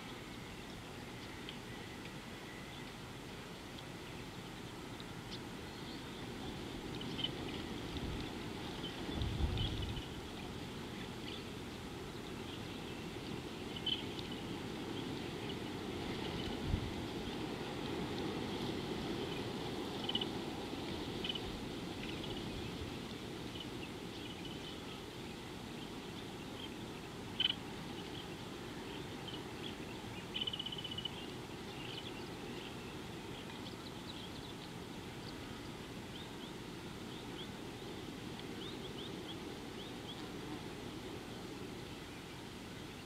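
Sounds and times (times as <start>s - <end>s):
low background noise: 0.0s - 43.0s
small birds chirping: 0.0s - 43.0s
bird trill: 30.2s - 32.1s.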